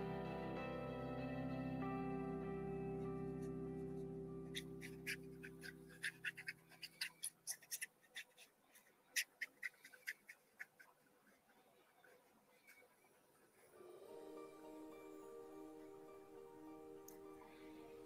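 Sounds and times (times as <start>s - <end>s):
held background music chord: 0.0s - 6.4s, 13.8s - 18.0s
paintbrush scratching on paper: 4.6s - 13.6s.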